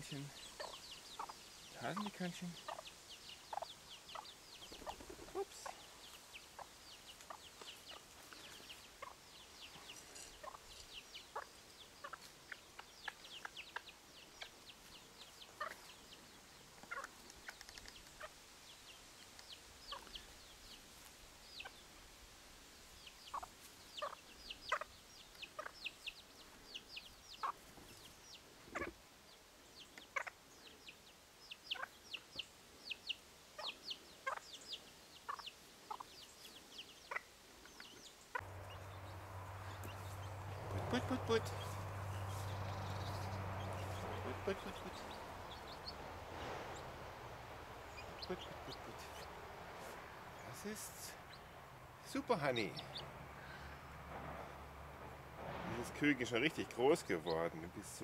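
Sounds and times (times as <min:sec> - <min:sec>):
chicks peeping: 0:00.0 - 0:22.0, 0:23.0 - 0:53.7, 0:55.8 - 0:58.0
soft clucks: 0:00.1 - 0:02.9, 0:15.4 - 0:15.9, 0:16.8 - 0:18.4, 0:23.3 - 0:25.9, 0:28.7 - 0:29.0, 0:29.8 - 0:30.4, 0:37.1 - 0:38.7.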